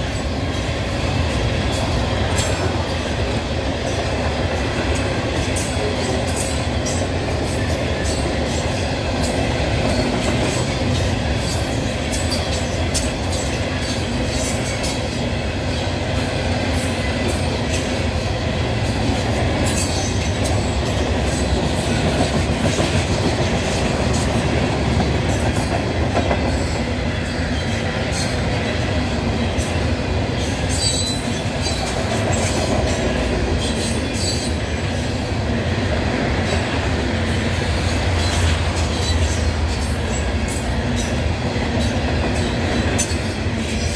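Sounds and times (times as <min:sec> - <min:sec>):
train wheels rumbling on rail: 0:00.0 - 0:43.9
clacks over rail joints: 0:18.8 - 0:28.8.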